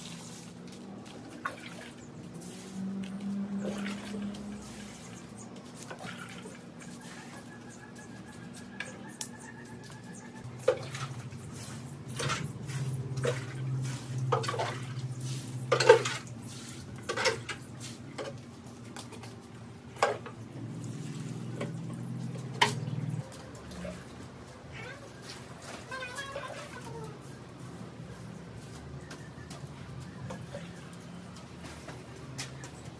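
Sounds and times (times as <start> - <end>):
water pouring and splashing: 0.0 - 7.4, 10.5 - 27.3.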